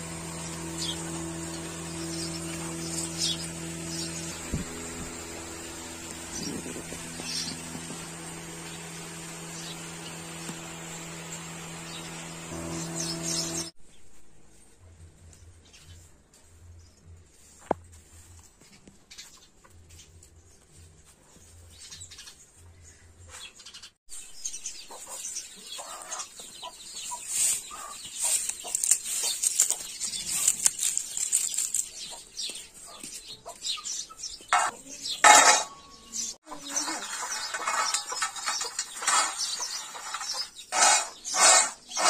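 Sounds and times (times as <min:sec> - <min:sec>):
garlic skins crackling: 0:27.2 - 0:32.7
garlic clattering onto steel plate: 0:34.6 - 0:35.9, 0:37.0 - 0:41.6.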